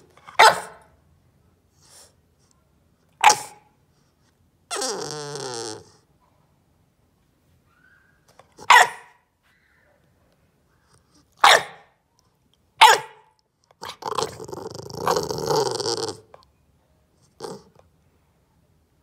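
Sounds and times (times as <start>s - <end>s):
puppy barking: 0.2s - 0.9s, 3.2s - 3.7s, 7.7s - 9.3s, 11.4s - 12.0s, 12.8s - 14.4s
puppy rough vocalising: 4.7s - 6.1s, 13.8s - 16.4s, 17.2s - 17.8s.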